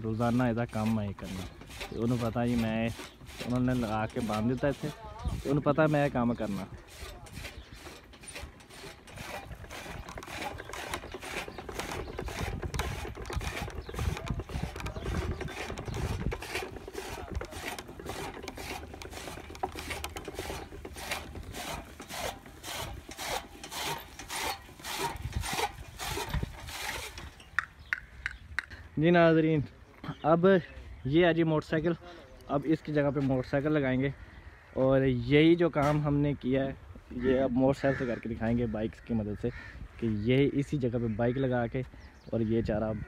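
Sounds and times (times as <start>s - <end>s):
chaff cutter rasping clatter: 0.2s - 28.4s.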